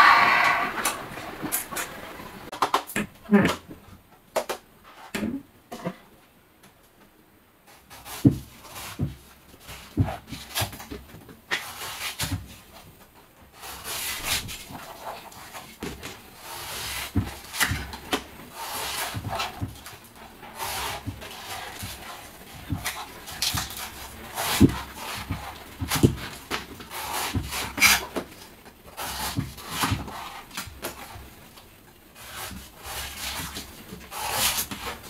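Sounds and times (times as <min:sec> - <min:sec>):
knife shaving coconut husk: 0:16.4 - 0:28.2, 0:28.9 - 0:31.2, 0:32.2 - 0:35.0.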